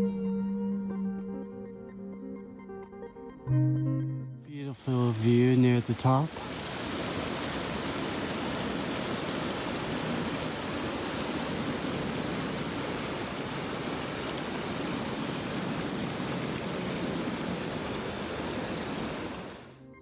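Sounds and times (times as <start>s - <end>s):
running water rushing: 4.5s - 19.8s.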